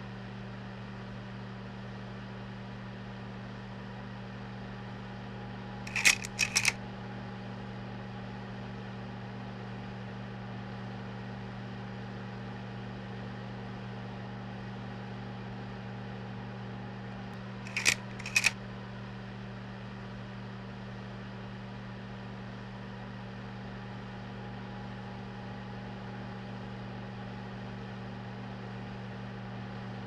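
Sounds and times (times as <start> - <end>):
projector mechanism clicking: 5.9 - 6.8, 17.7 - 18.6.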